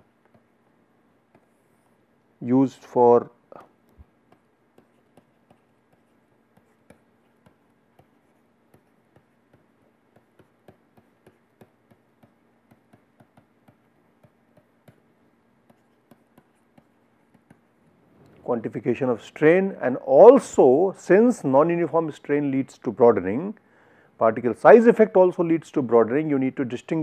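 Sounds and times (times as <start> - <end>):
stylus tapping on tablet screen: 0.0 - 2.0, 3.6 - 18.4.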